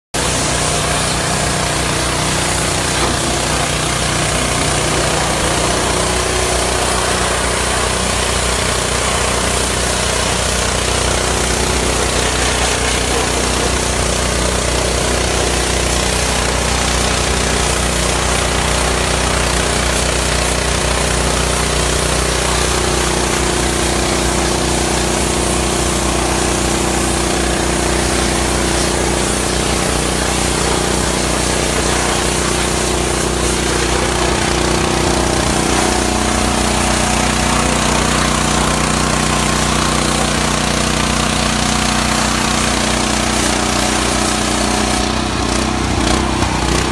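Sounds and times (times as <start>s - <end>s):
pressure washer jet hissing: 0.2s - 46.9s
washer motor and pump humming: 0.2s - 46.9s.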